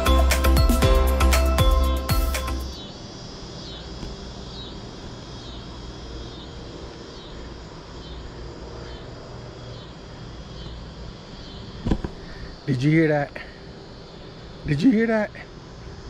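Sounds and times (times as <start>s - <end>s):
background music: 0.0s - 2.8s.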